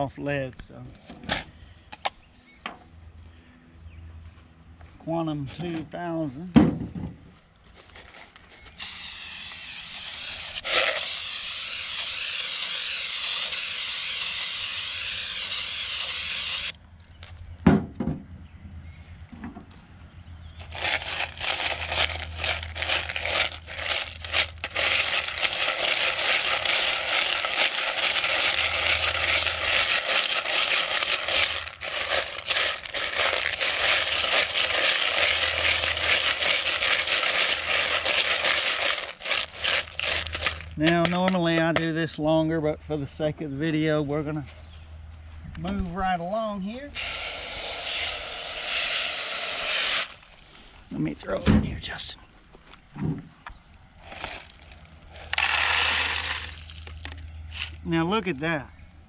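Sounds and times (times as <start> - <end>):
aerosol spray hissing: 8.8 - 16.7
brush scrubbing in plastic bowl: 21.6 - 40.6.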